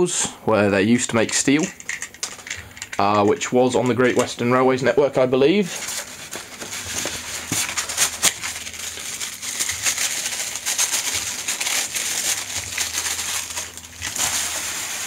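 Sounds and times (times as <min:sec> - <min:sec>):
plastic wrap crinkling: 0:05.6 - 0:15.0.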